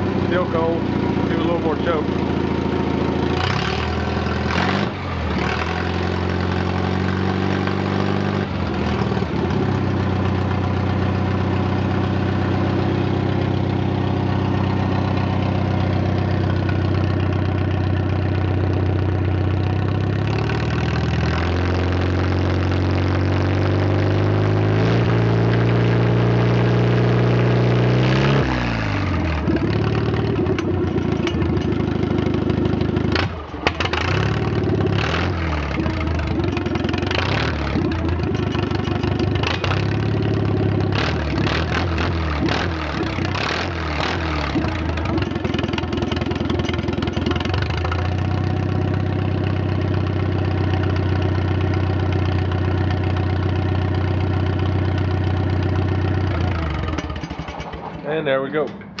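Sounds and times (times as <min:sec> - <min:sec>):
tractor engine running: 0:00.0 - 0:59.0.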